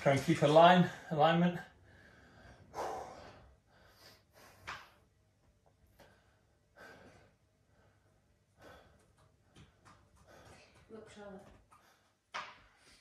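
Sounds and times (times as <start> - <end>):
man breathing sharply: 1.7 - 4.9, 5.9 - 10.9.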